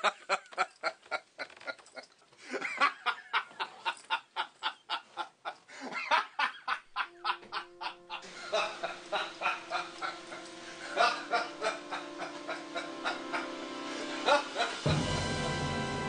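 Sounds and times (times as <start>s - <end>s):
man laughing hard: 2.5s - 15.0s
steady music notes: 7.4s - 16.0s.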